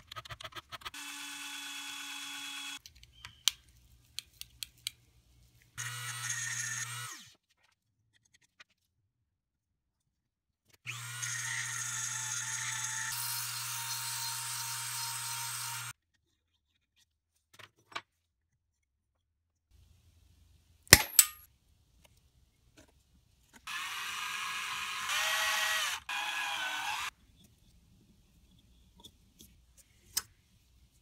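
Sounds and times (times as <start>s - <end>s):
cordless drill boring into wood: 1.0s - 2.8s, 5.8s - 7.3s, 10.9s - 13.2s, 23.7s - 27.1s.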